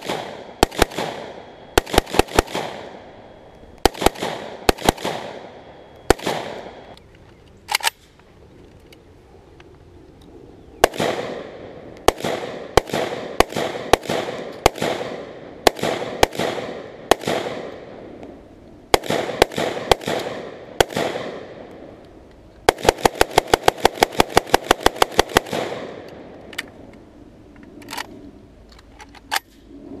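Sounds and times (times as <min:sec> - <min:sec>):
rapid rifle fire: 0:00.0 - 0:03.0, 0:03.8 - 0:06.9, 0:10.8 - 0:17.8, 0:18.9 - 0:21.5, 0:22.7 - 0:26.1
rifle shots with echo: 0:00.0 - 0:07.0, 0:10.8 - 0:22.0, 0:22.7 - 0:26.6.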